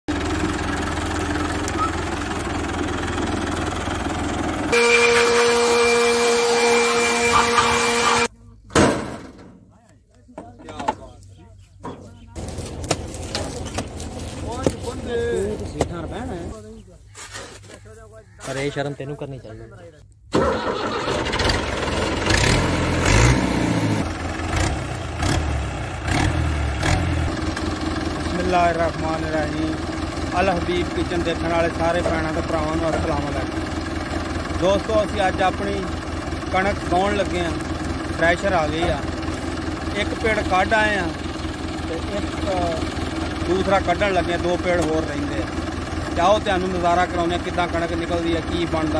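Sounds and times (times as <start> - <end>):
electric blower whining: 0.1 - 8.3
tractor diesel engine idling: 0.1 - 8.4, 10.6 - 16.8, 17.8 - 48.9.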